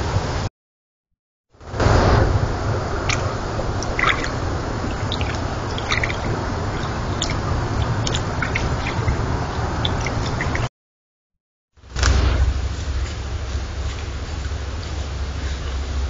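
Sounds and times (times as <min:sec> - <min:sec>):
microphone hiss and low rumble: 0:01.6 - 0:10.7, 0:11.8 - 0:16.0.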